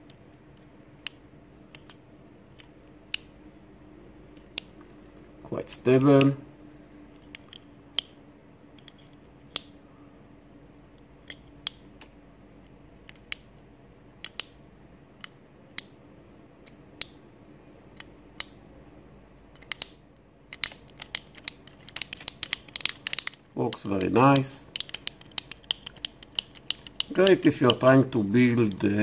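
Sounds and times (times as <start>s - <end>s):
keypad buttons clicking: 20.5s - 27.9s.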